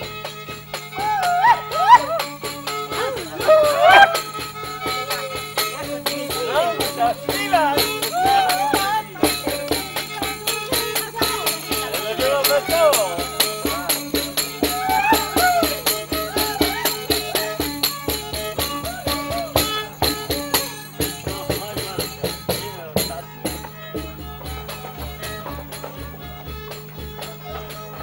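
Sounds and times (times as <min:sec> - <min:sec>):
fiddle melody: 0:00.0 - 0:28.0
frame drum with jingles: 0:00.2 - 0:28.0.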